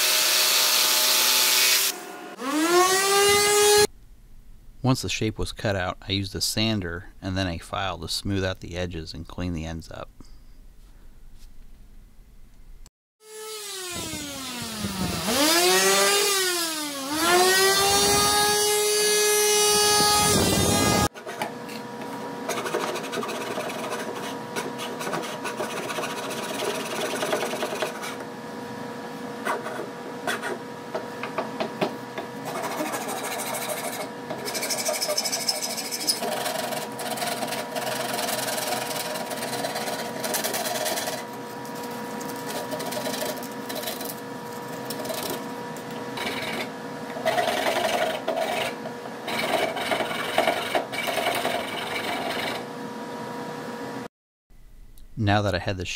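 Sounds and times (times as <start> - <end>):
electric sander motor whine: 1.8 - 3.9, 13.2 - 21.1
faint steady hum: 3.9 - 12.9
hand file rasping on wood: 22.5 - 28.2, 32.4 - 41.2, 42.5 - 44.1, 46.2 - 52.6.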